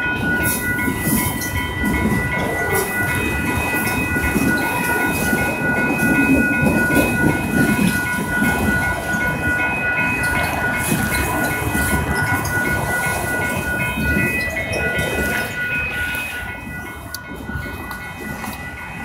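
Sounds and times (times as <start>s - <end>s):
crossing warning bell ringing: 0.0s - 19.0s
freight train wheels rumbling: 0.0s - 19.0s.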